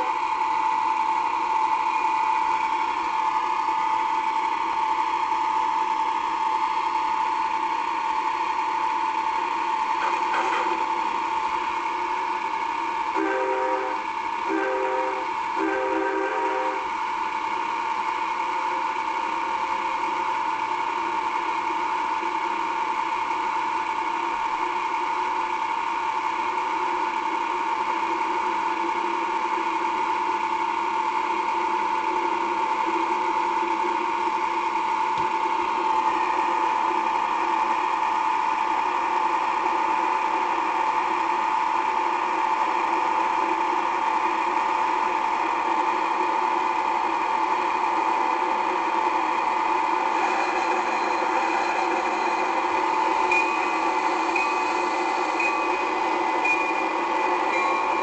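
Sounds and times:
locomotive high whine: 0.0s - 58.0s
train horn blasts: 13.1s - 16.9s.

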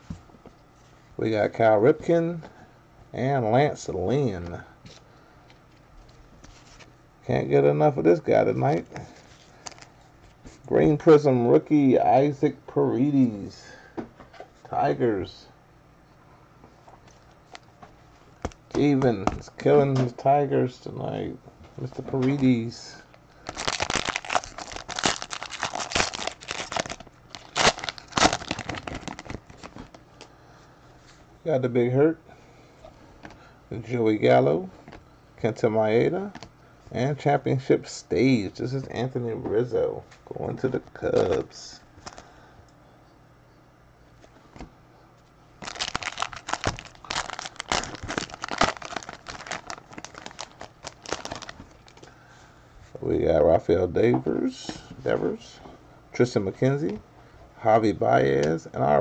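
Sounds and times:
foil wrapper crinkling: 9.2s - 10.0s, 23.4s - 30.0s, 45.6s - 52.1s.

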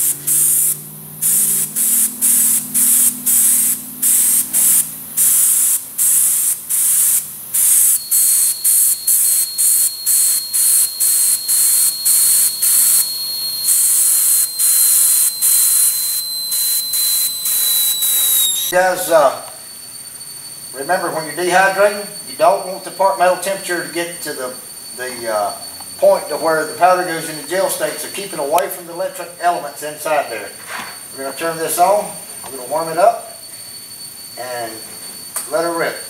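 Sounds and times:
spray gun hissing bursts: 0.0s - 13.1s, 13.7s - 18.4s
thin high whistle: 0.0s - 26.4s.

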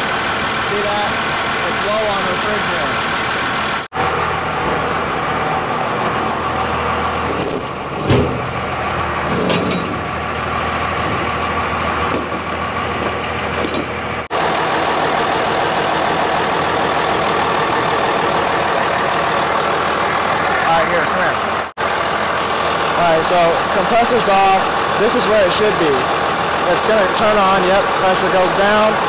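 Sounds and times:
diesel engine idling: 0.0s - 29.0s
high squeak: 7.3s - 8.2s.

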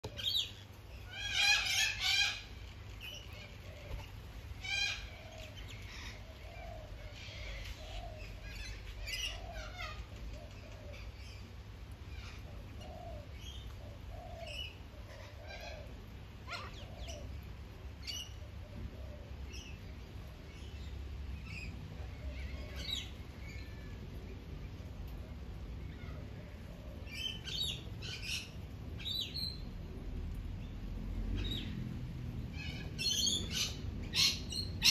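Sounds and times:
wild birds chirping and calling: 0.0s - 34.9s
steady low rumble: 11.0s - 34.9s.

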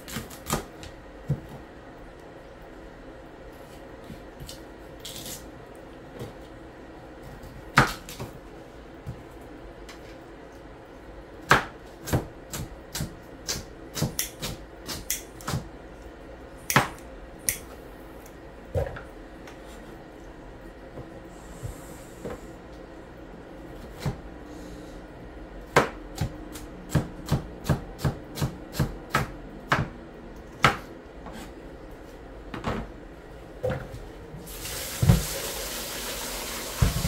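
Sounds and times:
knife chopping on plastic board: 11.4s - 15.7s, 25.7s - 30.0s, 30.6s - 30.9s.

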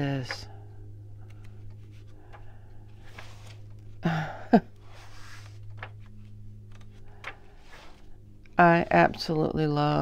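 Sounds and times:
book pages rustling: 0.0s - 0.6s, 1.2s - 4.0s, 4.7s - 8.2s
low hum: 0.0s - 10.0s.

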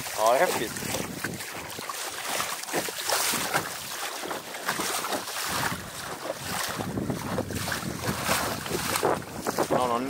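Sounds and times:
wind on microphone: 0.0s - 1.9s, 4.6s - 10.0s
water splashing against hull: 0.0s - 10.0s.

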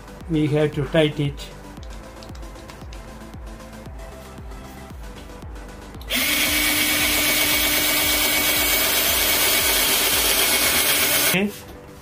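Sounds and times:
cordless drill boring into wood: 6.1s - 11.4s.

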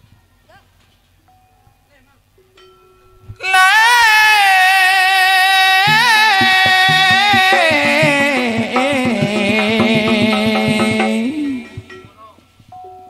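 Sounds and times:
man singing into a microphone: 3.4s - 12.1s
drum beat: 5.5s - 12.8s.

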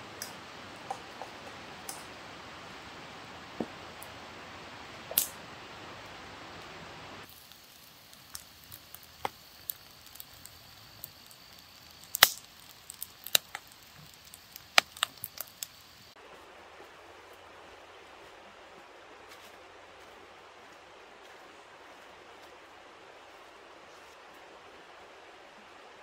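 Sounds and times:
faint steady hiss: 0.0s - 26.0s
sharp clicks and cracks: 7.3s - 16.0s.

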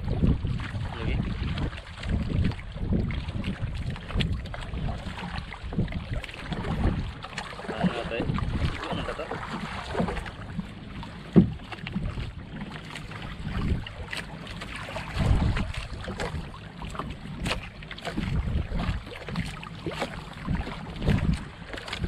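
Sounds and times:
water lapping around boat: 0.0s - 22.0s
wind buffeting microphone: 0.0s - 22.0s
low thumps: 11.3s - 12.4s.

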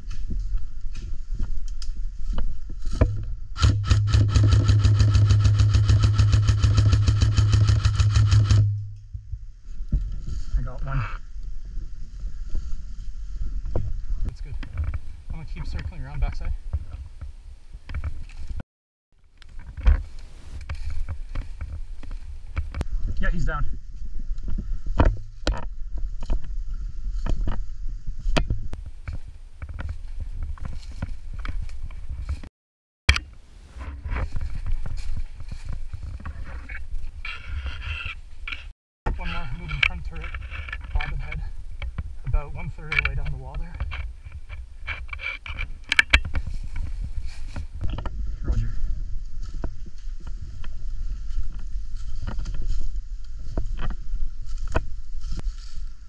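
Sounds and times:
low rumble: 0.0s - 15.8s, 46.4s - 56.0s
footsteps crunching dry leaves: 34.2s - 36.4s, 46.4s - 47.8s, 49.2s - 56.0s.

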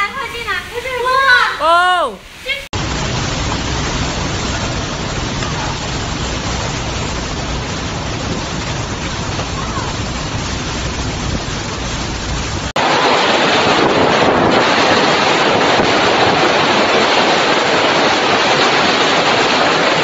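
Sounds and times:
gale-force wind: 0.0s - 20.0s
heavy driving rain: 2.3s - 20.0s.

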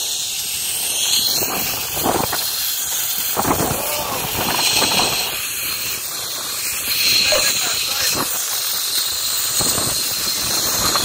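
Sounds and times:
zipline trolley hissing on cable: 0.0s - 11.0s
wind gusting over microphone: 1.3s - 2.6s, 3.2s - 8.5s, 9.4s - 11.0s.

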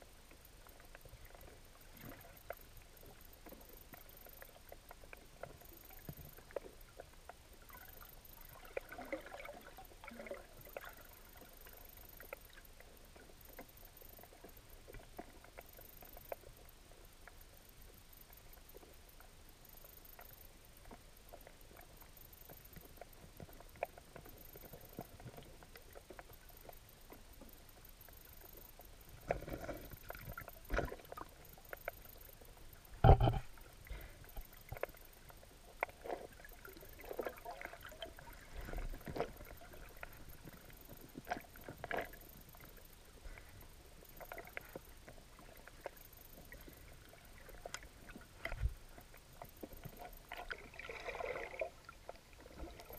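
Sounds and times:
underwater clicks and knocks: 28.0s - 32.3s, 33.0s - 35.1s.

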